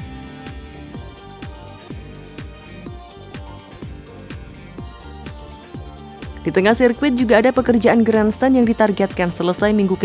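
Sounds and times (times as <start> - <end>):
kick drum beat: 0.0 - 6.9
electronic music: 0.0 - 10.0.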